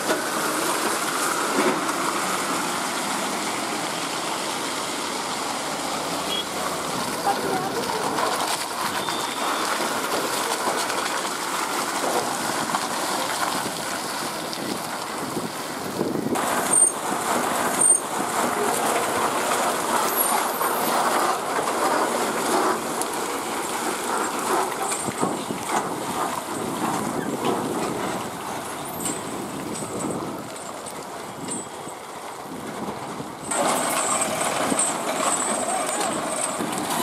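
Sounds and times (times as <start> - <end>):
bus engine rumbling: 0.0 - 37.0.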